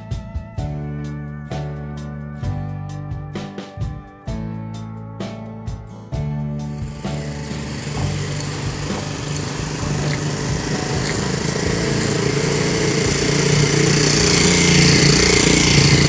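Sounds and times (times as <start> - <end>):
small engine running: 6.7 - 16.0.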